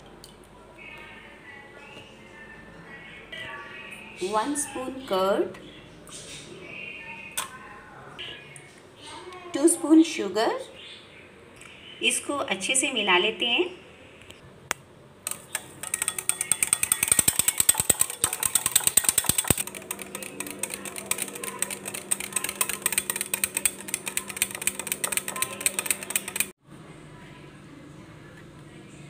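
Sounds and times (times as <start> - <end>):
beater clicking against bowl: 15.3 - 26.5.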